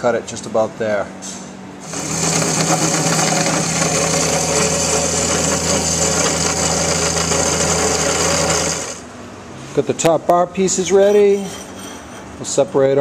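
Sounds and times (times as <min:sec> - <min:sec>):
power saw cutting steel tubing: 0:01.8 - 0:09.1.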